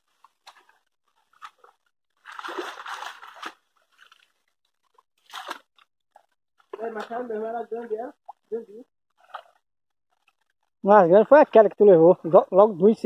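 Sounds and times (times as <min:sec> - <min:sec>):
muddy water splashing: 0:00.0 - 0:08.6, 0:09.2 - 0:09.6.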